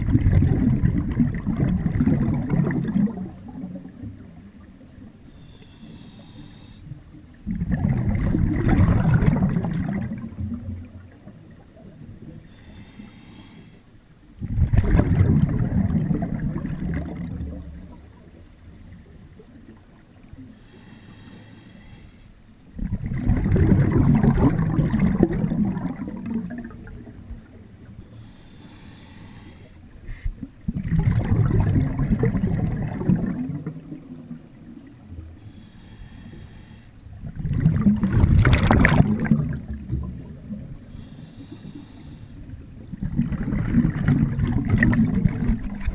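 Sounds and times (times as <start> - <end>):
exhaled bubbles rushing: 0.0 - 5.1, 7.4 - 12.4, 14.4 - 18.4, 22.7 - 27.9, 30.6 - 35.3, 37.1 - 40.9, 42.5 - 45.9
regulator inhale hiss: 5.2 - 7.0, 12.4 - 14.0, 20.5 - 22.5, 28.0 - 30.4, 35.4 - 37.2, 40.8 - 42.6.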